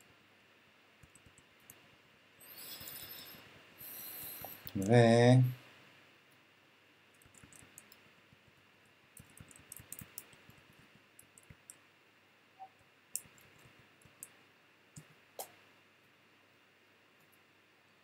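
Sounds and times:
computer mouse clicks: 0:01.0 - 0:01.8, 0:07.1 - 0:08.0, 0:09.2 - 0:10.6, 0:13.1 - 0:14.3.

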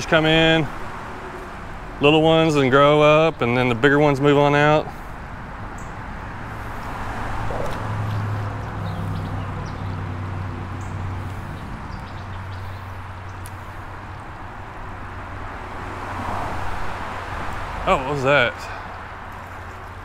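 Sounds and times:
vehicle humming on highway: 0:00.0 - 0:20.0
creek water flowing: 0:04.8 - 0:20.0.

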